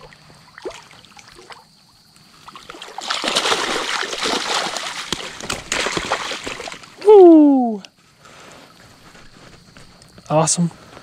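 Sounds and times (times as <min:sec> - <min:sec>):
fish splashing in water: 0:00.0 - 0:01.7, 0:02.4 - 0:07.0.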